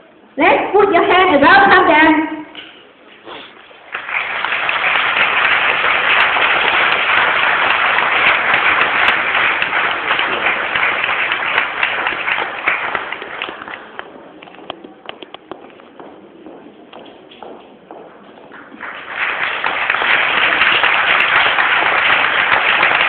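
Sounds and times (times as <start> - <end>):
audience applauding: 3.8 - 15.2, 18.5 - 23.0.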